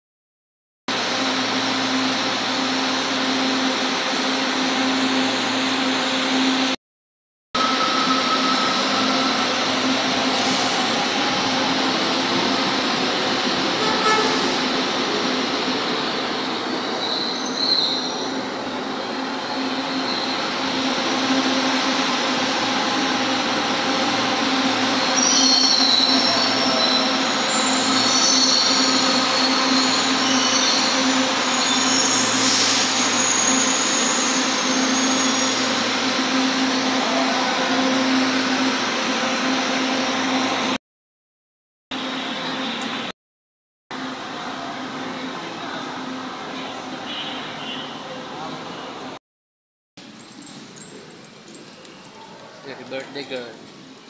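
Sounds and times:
metro train rumble: 0.9s - 6.8s, 7.6s - 40.8s, 44.0s - 49.2s
train wheel squeals: 7.6s - 11.1s, 16.7s - 21.6s, 24.7s - 38.4s.

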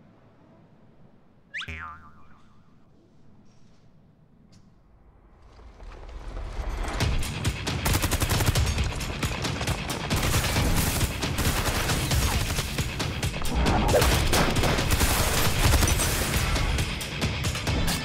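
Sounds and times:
background music: 7.0s - 18.0s
rapid gunfire: 7.2s - 16.9s.

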